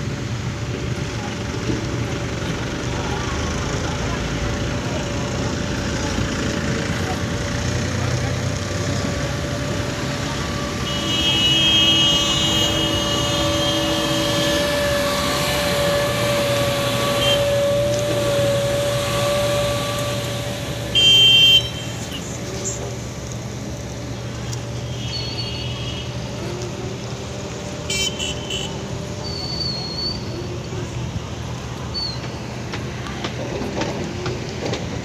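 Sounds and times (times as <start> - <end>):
road traffic: 0.0 - 35.0
vehicle horns honking: 10.0 - 22.4, 24.8 - 26.4, 27.8 - 30.2.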